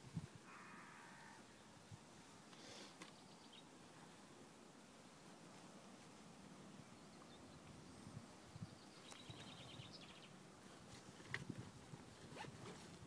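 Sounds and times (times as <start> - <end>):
bird chirping trill: 8.7 - 10.3.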